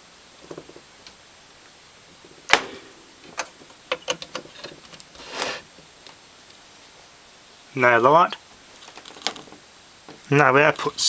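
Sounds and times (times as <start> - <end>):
rustle of handling: 0.3 - 7.2, 7.8 - 11.0
wire terminal clicks: 3.2 - 5.2.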